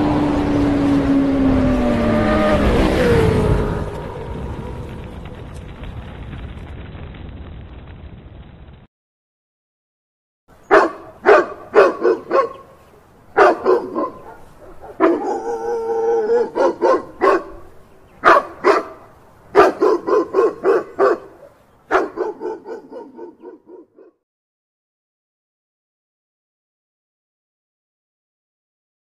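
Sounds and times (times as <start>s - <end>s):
dog barking: 10.7s - 24.2s.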